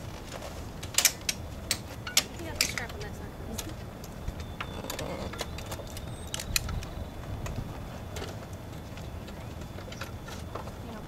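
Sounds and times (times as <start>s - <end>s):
metal clicks and rattles: 0.8s - 3.8s.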